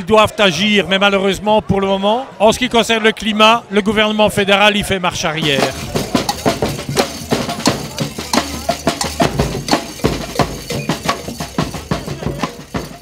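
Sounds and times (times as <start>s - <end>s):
fast percussion music: 5.4s - 13.0s.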